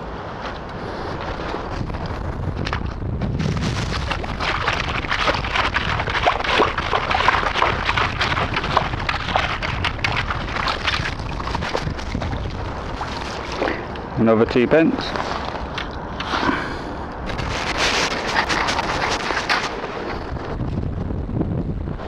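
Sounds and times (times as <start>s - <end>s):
water sloshing: 0.9s - 14.2s, 15.0s - 16.6s.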